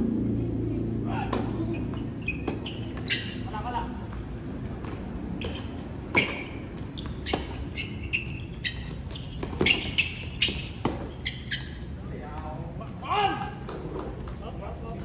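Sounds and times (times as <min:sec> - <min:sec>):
tennis ball bouncing on hard court: 0:01.3 - 0:03.4, 0:04.7 - 0:07.9, 0:08.6 - 0:11.6.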